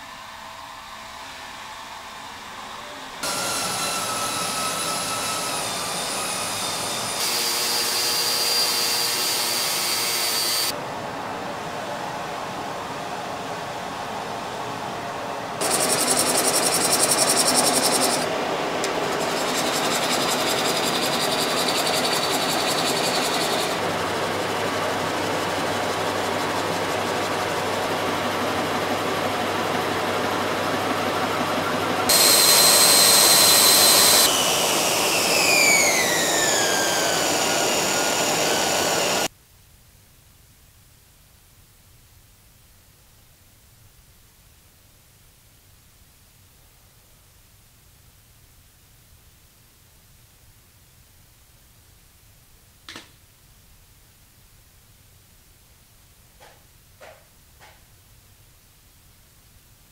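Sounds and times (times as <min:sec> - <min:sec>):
lathe whine falling in pitch: 0:03.2 - 0:10.7, 0:31.4 - 0:39.3
wood lathe spinning: 0:03.2 - 0:10.7, 0:15.6 - 0:39.3
dust extractor rushing: 0:03.2 - 0:12.4, 0:15.5 - 0:39.3
gouge cutting wood: 0:19.0 - 0:23.8, 0:32.1 - 0:39.3.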